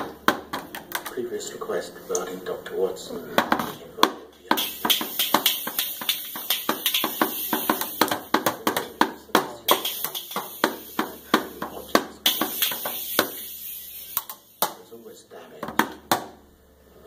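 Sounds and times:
drum hits: 3.4s - 13.5s.

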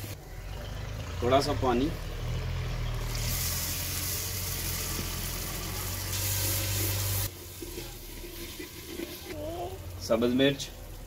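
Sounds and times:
masala hissing and sizzling: 2.9s - 11.0s
wooden spoon stirring: 7.3s - 9.7s.

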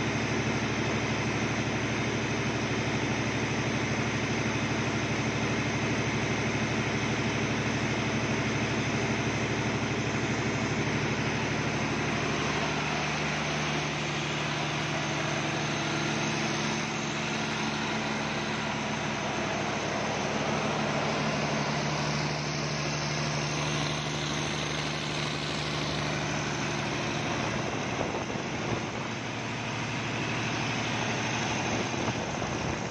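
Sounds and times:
diesel generator engine running: 0.0s - 32.9s.

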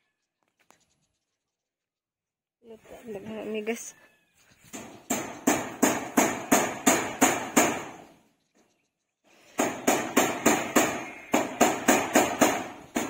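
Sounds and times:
hammer nailing metal roofing: 4.7s - 8.2s, 9.5s - 13.0s.

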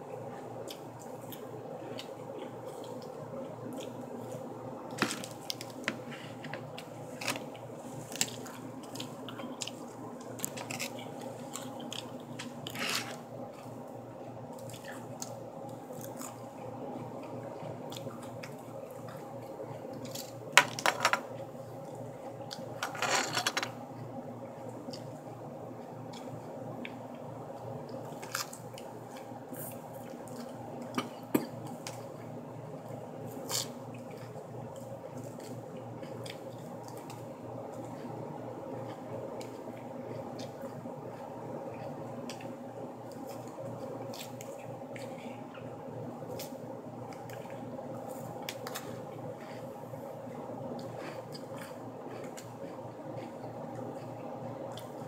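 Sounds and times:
steady low hum: 0.0s - 55.0s
wet crunching of lettuce: 27.9s - 30.6s.

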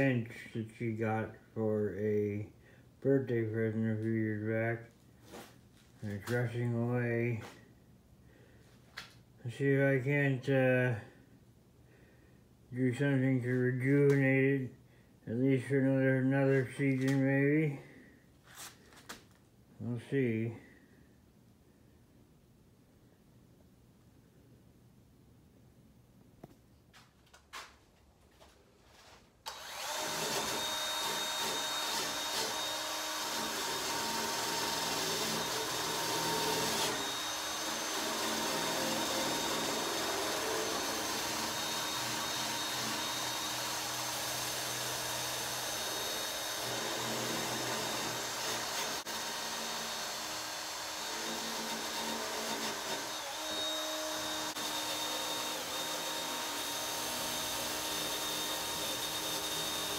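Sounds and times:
drill wire brush scrubbing metal: 29.5s - 59.9s.

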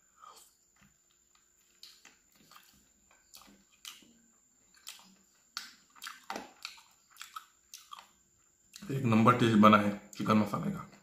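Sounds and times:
close-up chewing: 0.3s - 8.9s
wet mouth clicks: 4.8s - 8.9s.

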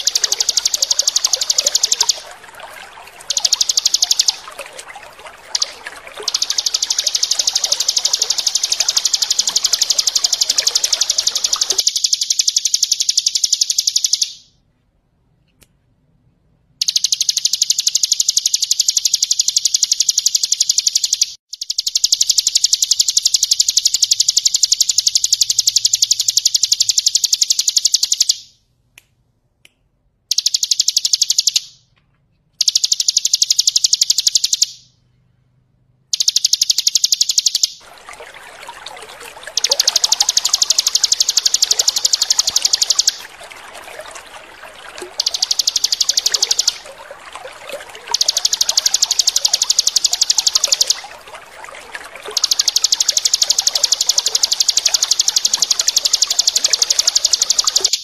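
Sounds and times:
running water trickle: 0.0s - 14.2s, 36.3s - 58.0s
bird rattling trill: 0.0s - 14.5s, 16.8s - 28.4s, 30.3s - 31.8s, 32.6s - 34.8s, 36.1s - 58.0s.

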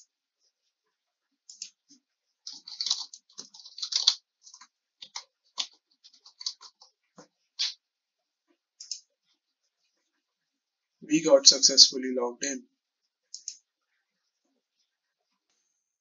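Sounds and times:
keyboard keystrokes clicking: 2.5s - 4.2s
mouse click: 13.3s - 13.6s.

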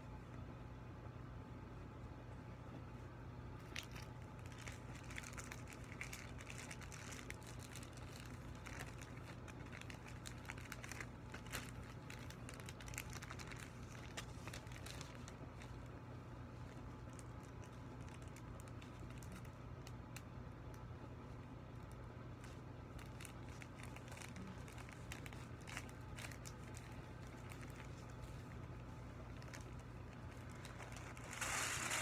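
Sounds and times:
faint low hum: 0.0s - 32.0s
foil balloon crinkling: 3.6s - 20.2s, 21.3s - 32.0s.

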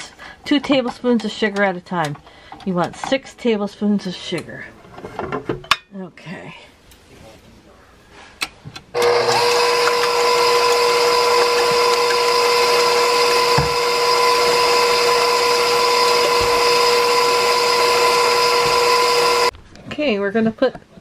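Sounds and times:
electric mixer running: 9.0s - 19.5s.

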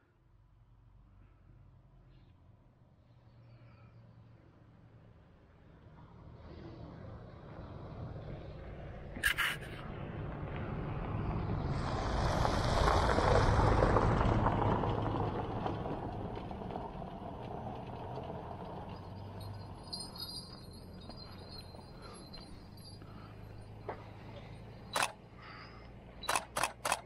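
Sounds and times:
vehicle engine passing: 6.0s - 27.0s
tyres on gravel: 15.6s - 27.0s
sharp double click: 26.2s - 27.0s.

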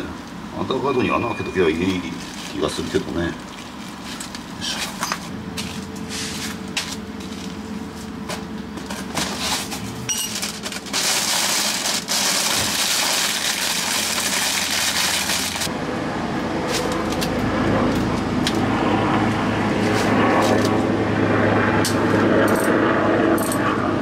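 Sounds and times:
paper and plastic rustling: 1.9s - 7.6s, 8.8s - 15.7s.

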